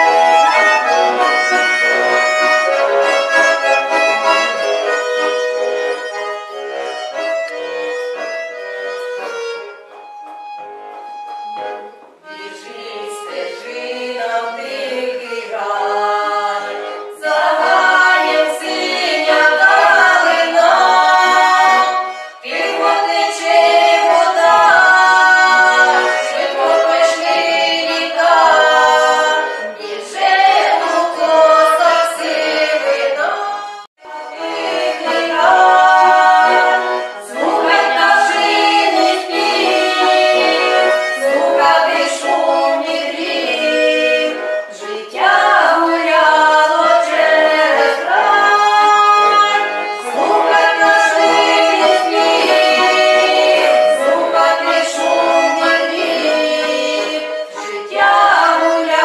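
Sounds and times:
women singing together: 12.3 - 59.0.

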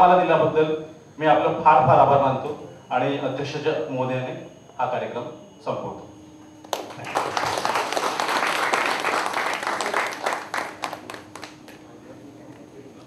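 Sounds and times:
audience applauding: 6.7 - 11.9.

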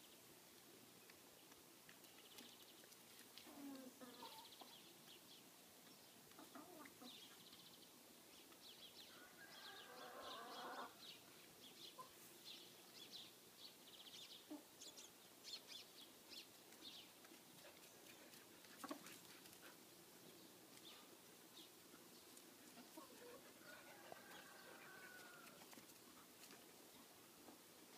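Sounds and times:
hens clucking: 6.3 - 7.3.

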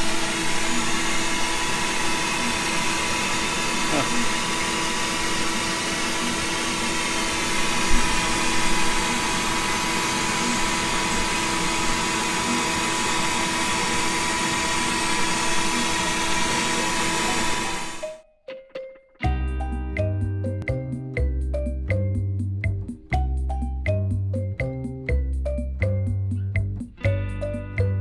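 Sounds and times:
cnc router spindle whining: 0.0 - 18.1.

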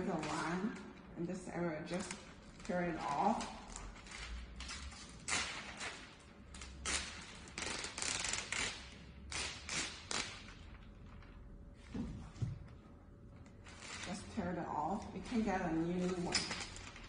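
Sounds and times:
plastic film crinkling and rustling: 1.9 - 8.9, 15.2 - 17.0.

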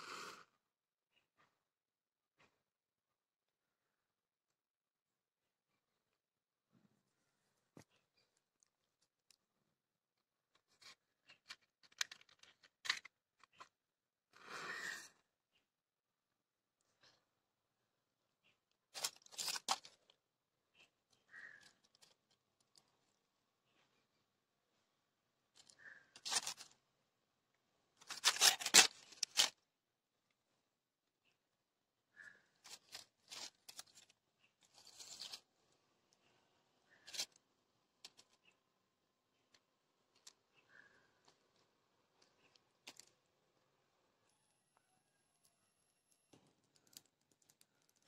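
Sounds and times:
faint clicks and scratches: 7.0 - 13.9, 18.3 - 29.6, 32.2 - 48.0
matches striking a matchbox: 28.0 - 29.6.

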